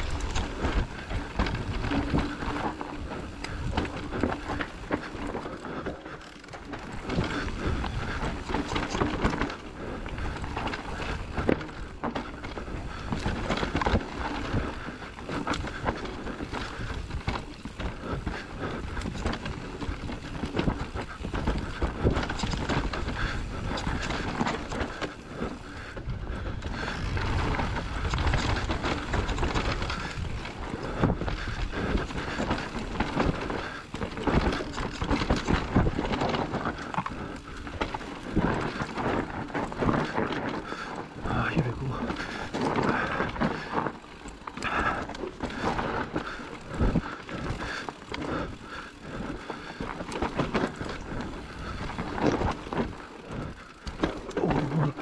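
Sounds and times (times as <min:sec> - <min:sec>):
bike rattles and knocks: 0:00.0 - 0:55.0
tyres rolling over dirt: 0:00.0 - 0:55.0.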